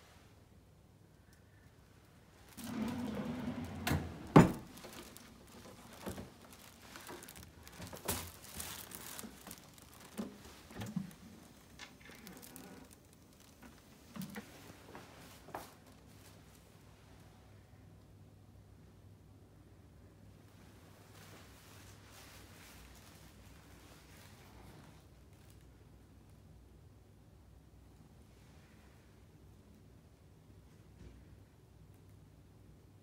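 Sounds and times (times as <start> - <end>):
rustling: 1.5 - 16.8, 20.5 - 25.8.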